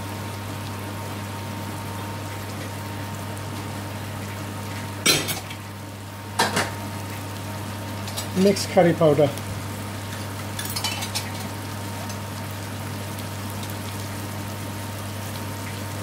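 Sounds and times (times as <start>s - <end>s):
onion frying in a pan: 0.0s - 16.0s
steel pots and lids clattering: 10.6s - 11.5s.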